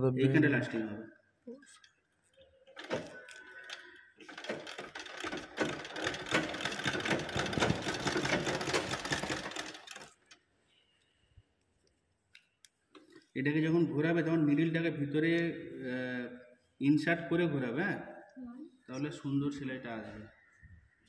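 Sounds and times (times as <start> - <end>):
sewing machine stitching leather: 2.8 - 10.4.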